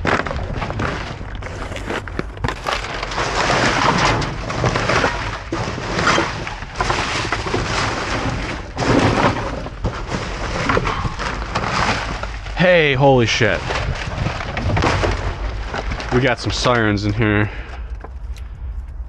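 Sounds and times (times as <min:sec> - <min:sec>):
trash knocks and clatters: 0:00.0 - 0:12.6, 0:13.3 - 0:17.0
packing paper crinkling: 0:00.8 - 0:03.5.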